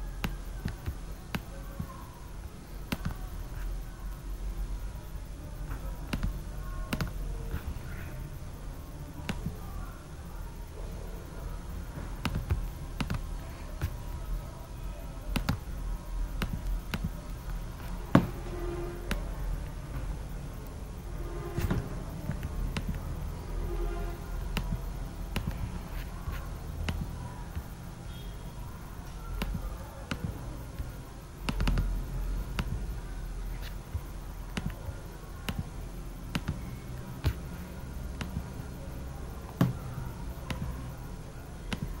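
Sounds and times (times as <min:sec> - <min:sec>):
low room noise rumble: 0:00.0 - 0:42.0
computer mouse clicking: 0:00.2 - 0:01.9, 0:02.9 - 0:03.7, 0:06.1 - 0:07.9, 0:12.2 - 0:14.2, 0:15.3 - 0:15.7, 0:16.4 - 0:17.2, 0:22.3 - 0:23.1, 0:24.5 - 0:27.7, 0:31.5 - 0:32.8, 0:34.5 - 0:34.8, 0:36.3 - 0:37.4, 0:38.1 - 0:38.6, 0:41.7 - 0:42.0.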